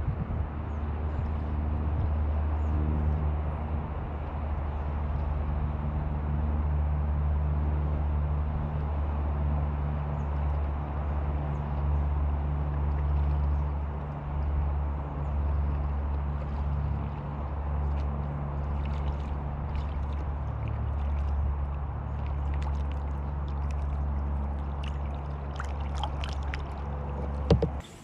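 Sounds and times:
low mechanical drone: 0:00.0 - 0:28.0
water splashes and drips: 0:08.6 - 0:27.9.

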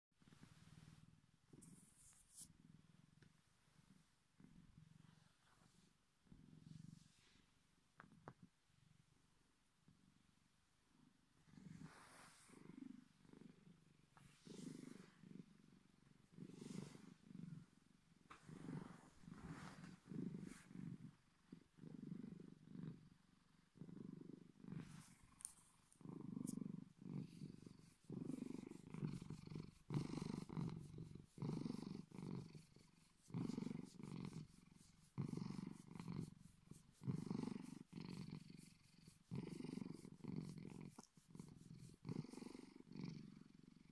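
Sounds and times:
cat purring: 0:00.2 - 0:43.9
soft crackle: 0:24.7 - 0:31.2.

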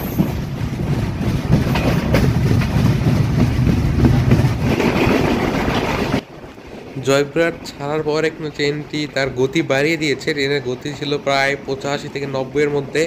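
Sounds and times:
sharp wheel clacks: 0:00.0 - 0:06.2
train wheels rumbling on rails: 0:00.0 - 0:13.0.

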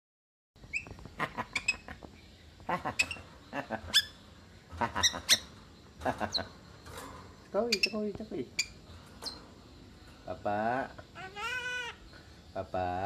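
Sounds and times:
myna calling: 0:10.7 - 0:12.1.

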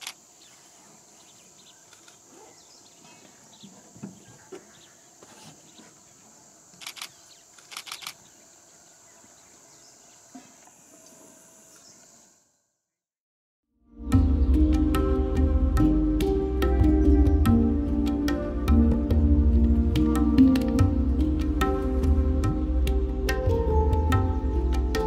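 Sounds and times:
camera shutter clicks: 0:00.0 - 0:00.2, 0:06.8 - 0:08.2
insects droning: 0:00.0 - 0:12.8.

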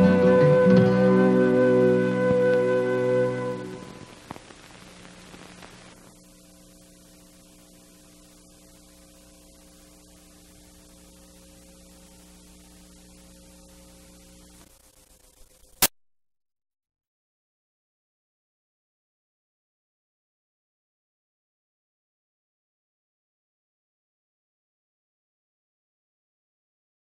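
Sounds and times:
music: 0:00.0 - 0:04.1
electrical mains hum: 0:00.0 - 0:15.8
faint hiss: 0:00.6 - 0:15.9.

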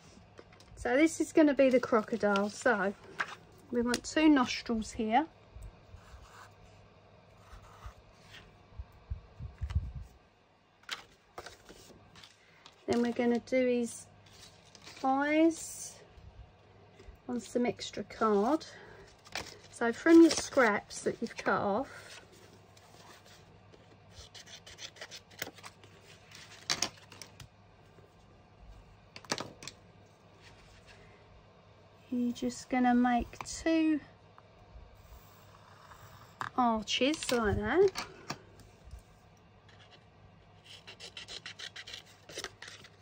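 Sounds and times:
cardstock rustling: 0:19.2 - 0:23.4.

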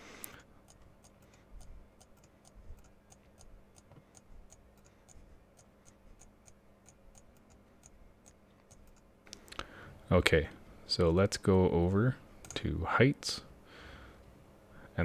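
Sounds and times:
computer mouse clicks: 0:00.2 - 0:09.6.

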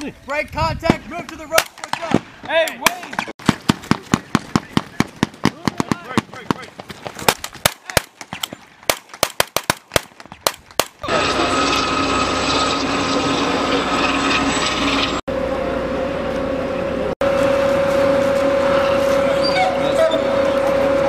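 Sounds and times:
rifle shots: 0:01.6 - 0:06.6, 0:07.2 - 0:11.0
armoured vehicle engine whine: 0:11.0 - 0:21.0.

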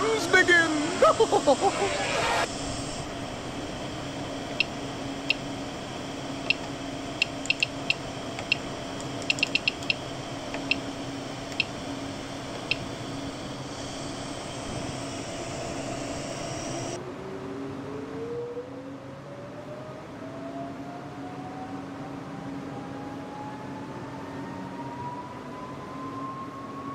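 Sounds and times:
printer fans humming: 0:00.0 - 0:17.0
short high clicking beeps: 0:06.4 - 0:08.6, 0:09.2 - 0:10.0.

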